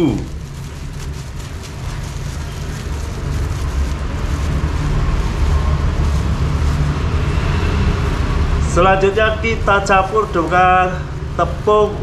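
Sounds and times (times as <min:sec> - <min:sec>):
plastic bag crinkling: 0:00.0 - 0:08.2
flour pouring into tub: 0:00.0 - 0:08.8
low rumble: 0:00.0 - 0:10.1.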